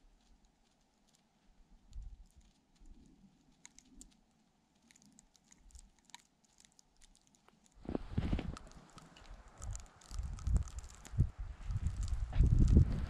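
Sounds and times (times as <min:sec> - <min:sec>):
low rumble of wind: 0:01.5 - 0:03.4, 0:07.8 - 0:13.0.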